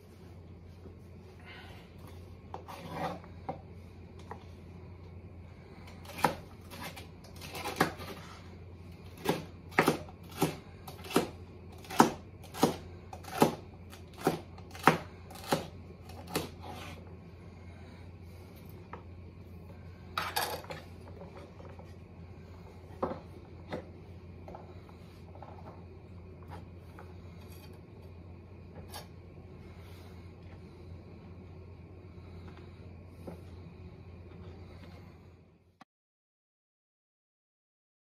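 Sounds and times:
steady low hum: 0.0 - 35.8
knife chopping on cutting board: 9.1 - 17.0.

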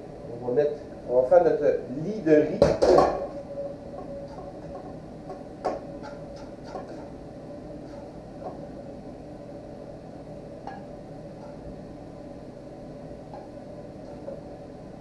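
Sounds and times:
steady low hum: 0.0 - 15.0
utensil scraping frying pan: 2.8 - 8.8, 10.6 - 11.9.

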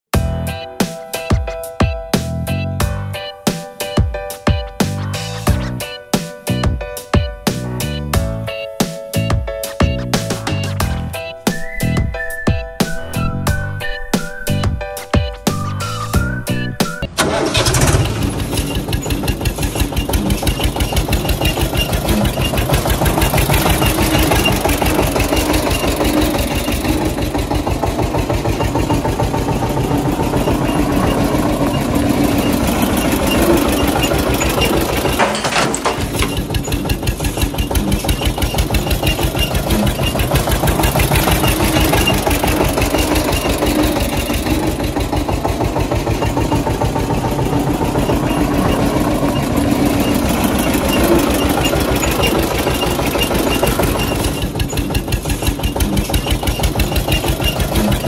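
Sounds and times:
tractor diesel engine chugging: 10.1 - 58.0.

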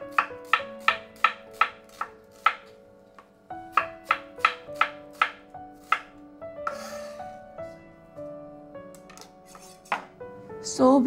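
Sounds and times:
knife slicing onion: 0.0 - 2.8, 3.7 - 7.8
knife tapping cutting board: 0.1 - 6.1.

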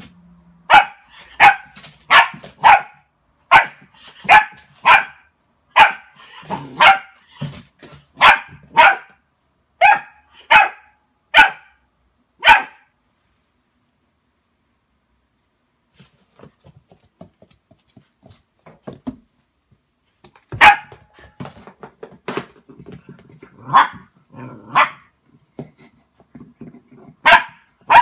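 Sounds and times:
dog barking: 0.7 - 7.2, 8.2 - 9.2, 9.8 - 11.8, 12.4 - 12.9, 20.6 - 21.0, 23.6 - 24.1, 24.7 - 25.1, 27.2 - 28.0.

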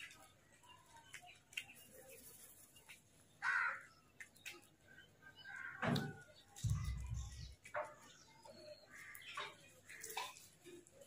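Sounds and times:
crows cawing: 3.4 - 4.0, 5.4 - 6.2.

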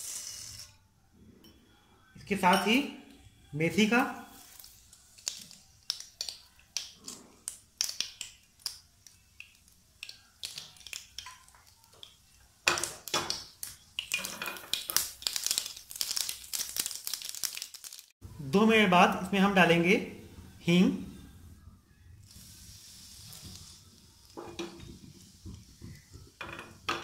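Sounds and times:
seeds popping in hot oil: 4.4 - 18.1.

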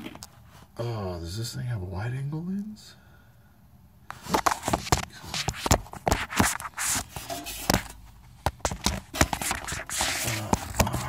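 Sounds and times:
phone handling noise: 4.1 - 11.0.

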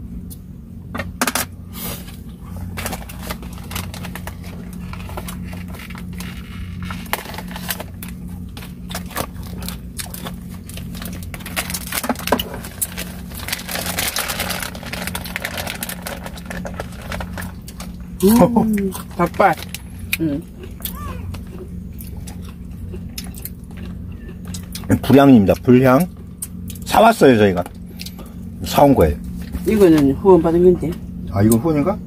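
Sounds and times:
steady low hum: 0.0 - 32.0
plastic packaging crinkling: 2.7 - 18.0.

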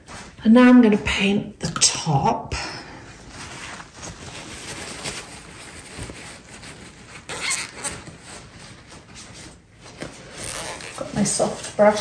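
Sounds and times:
rustling handling noise: 3.1 - 12.0.

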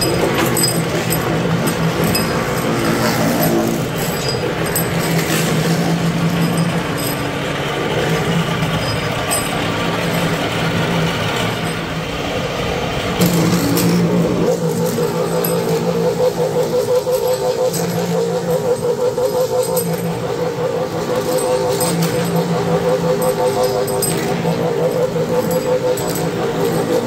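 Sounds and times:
machine motor humming: 0.0 - 27.0
sharp metallic clicks: 13.2 - 27.0.

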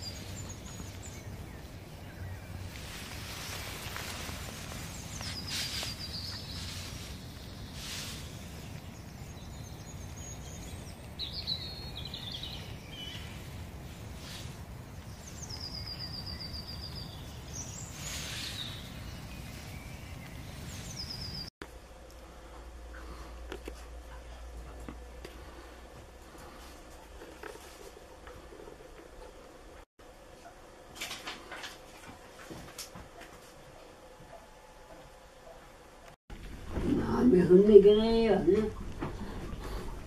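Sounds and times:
songbirds trilling: 0.0 - 21.5.

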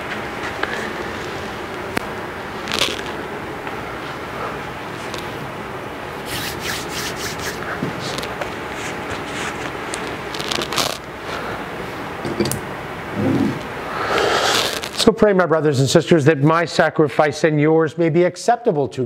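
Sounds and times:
steady room hiss: 0.0 - 19.0
cloth rustling and scraping: 2.6 - 3.2, 6.2 - 11.5, 14.5 - 15.1.

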